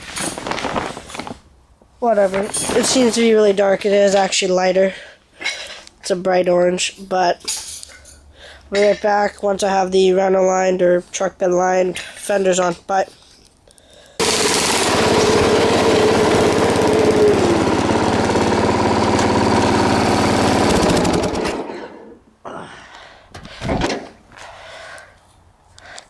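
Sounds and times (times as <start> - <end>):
lawn tractor engine running: 14.2 - 21.8.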